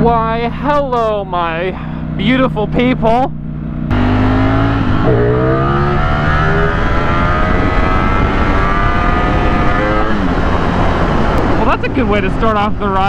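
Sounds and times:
motorcycle engine accelerating: 0.0s - 13.0s
wind noise: 4.0s - 13.0s.

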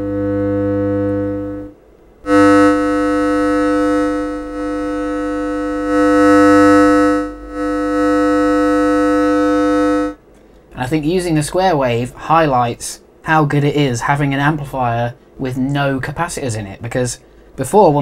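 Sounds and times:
buzzy square-wave tone: 0.0s - 10.2s.

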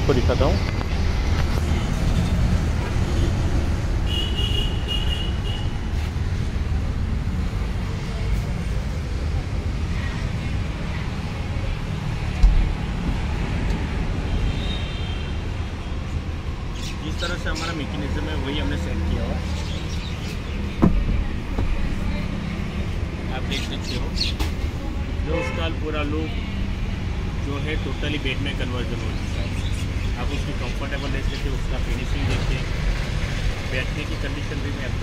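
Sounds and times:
road traffic rumble: 0.0s - 35.0s
short thump: 12.4s - 12.8s, 20.8s - 21.7s.

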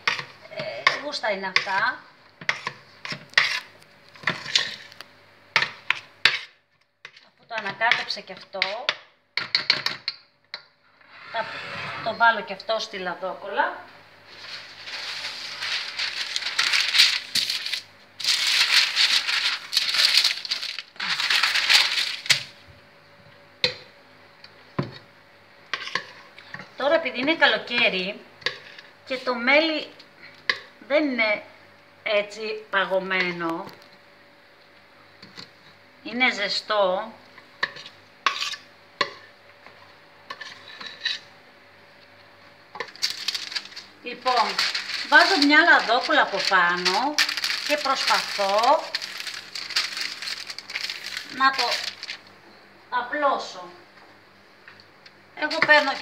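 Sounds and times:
utensil scraping bowl: 11.0s - 12.5s, 40.3s - 41.3s
baking paper rustling: 14.2s - 22.6s, 42.8s - 52.3s, 55.4s - 56.0s.

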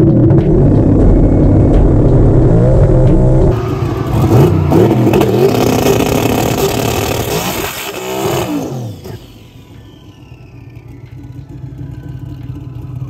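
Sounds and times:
car engine revving at full throttle: 0.0s - 13.0s.

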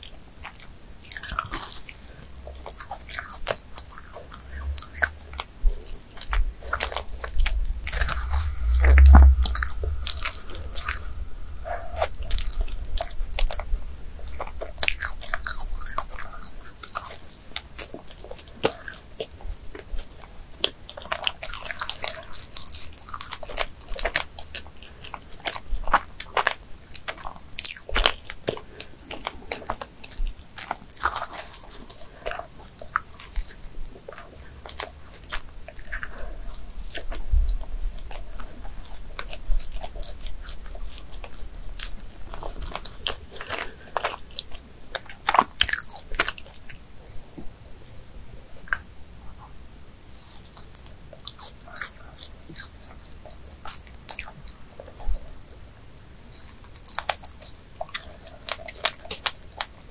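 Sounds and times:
person chewing doughnut: 0.0s - 46.9s, 50.1s - 55.1s, 56.2s - 59.9s.

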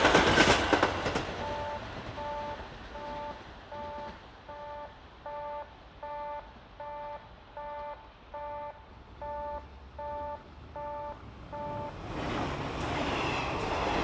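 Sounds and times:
level-crossing alarm clanging: 1.4s - 12.0s.

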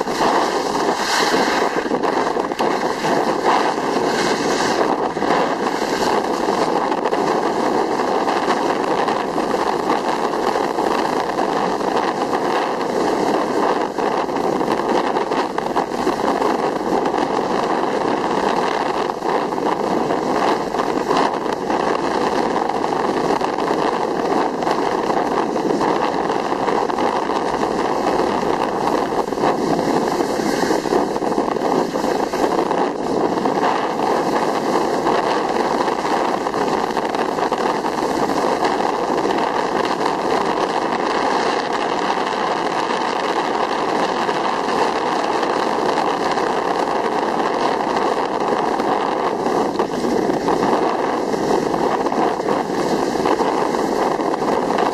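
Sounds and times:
skis sliding over snow: 0.0s - 54.9s
wind buffeting microphone: 0.0s - 54.9s.

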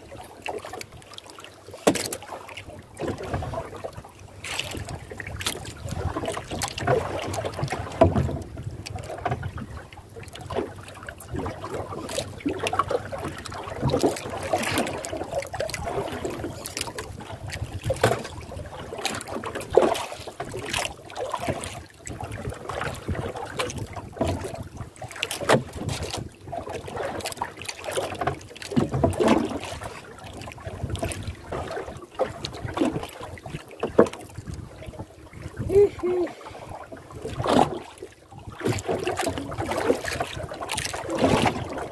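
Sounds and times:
knocks and splashes: 0.0s - 41.9s
water slapping boat hull: 0.0s - 41.9s
wind on microphone: 34.3s - 37.8s.

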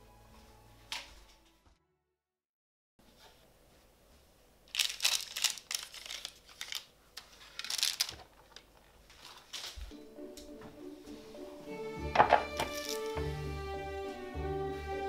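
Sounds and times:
soft music: 0.0s - 1.9s, 9.9s - 15.0s
baking paper rustling: 4.7s - 9.9s, 12.3s - 13.1s.

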